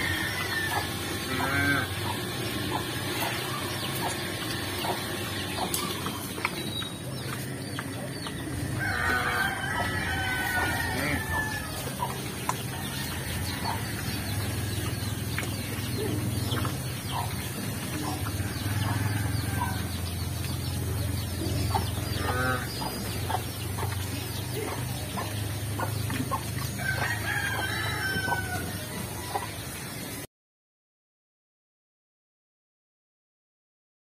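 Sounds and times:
rooster crowing: 0.0s - 1.9s, 8.7s - 12.0s, 18.4s - 20.0s, 26.8s - 29.4s
pigs grunting: 0.0s - 19.9s, 21.2s - 26.5s
pigs chewing feed: 0.0s - 29.6s
chickens clucking: 0.0s - 30.3s.

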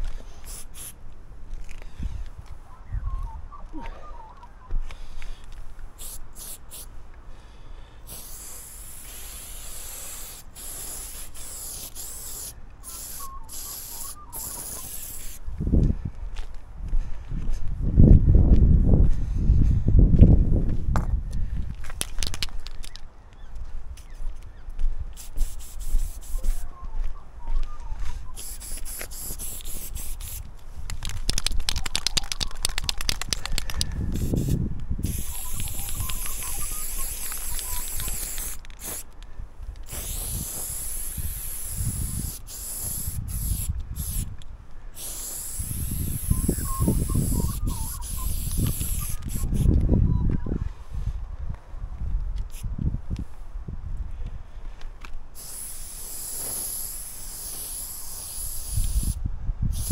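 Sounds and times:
spray can rattling when shaken: 0.4s - 1.0s, 6.0s - 6.9s, 8.1s - 15.4s, 22.0s - 23.0s, 25.2s - 26.6s, 28.4s - 39.1s, 39.9s - 44.3s, 45.0s - 49.7s, 55.4s - 59.9s
spray paint can hissing: 0.4s - 1.0s, 6.0s - 6.9s, 8.1s - 15.4s, 25.2s - 26.7s, 28.3s - 39.1s, 39.8s - 44.3s, 45.0s - 49.8s, 55.3s - 59.9s.

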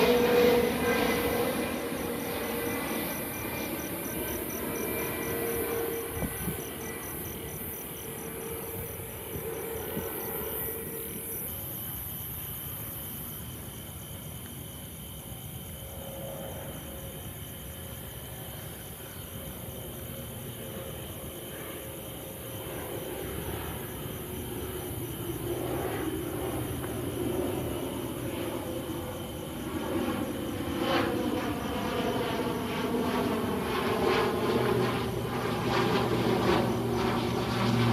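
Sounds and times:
aircraft engines rumbling: 0.0s - 11.8s, 20.6s - 37.9s
night insects chirping: 0.0s - 37.9s.

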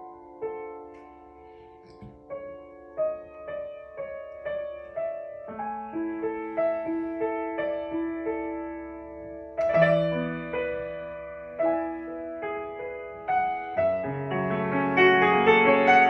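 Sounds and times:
soft piano melody: 0.0s - 16.0s.

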